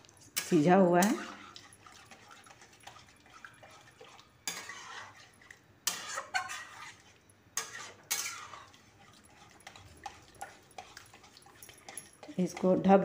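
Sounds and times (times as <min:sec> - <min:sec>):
stirring gravy: 0:00.0 - 0:13.0
spatula scraping metal pan: 0:00.3 - 0:12.8.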